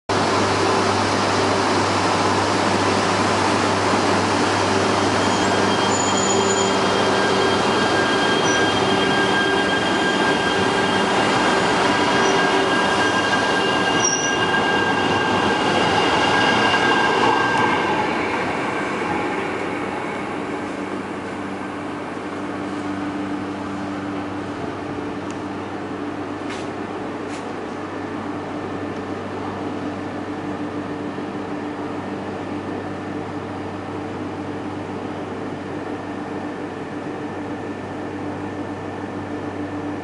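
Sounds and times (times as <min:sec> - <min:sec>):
train wheels running on rails: 0:00.2 - 0:28.9.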